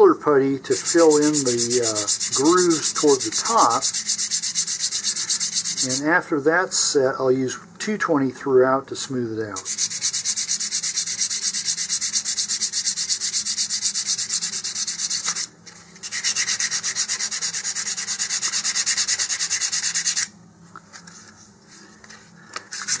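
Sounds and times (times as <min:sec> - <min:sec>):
sandpaper rasping on plastic: 0:00.7 - 0:06.1, 0:09.6 - 0:20.3, 0:22.7 - 0:23.0.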